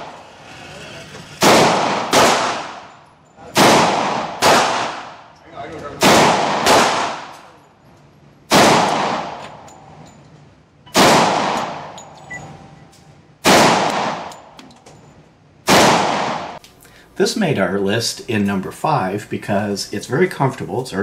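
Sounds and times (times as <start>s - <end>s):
pistol shots echoing indoors: 1.4s - 5.4s, 6.0s - 7.6s, 8.5s - 9.7s, 10.9s - 12.1s, 13.4s - 14.6s, 15.6s - 16.6s.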